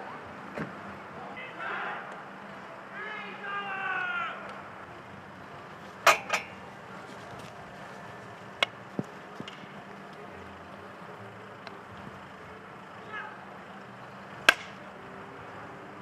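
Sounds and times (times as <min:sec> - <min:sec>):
hockey stick hitting ball: 0:14.4 - 0:14.8.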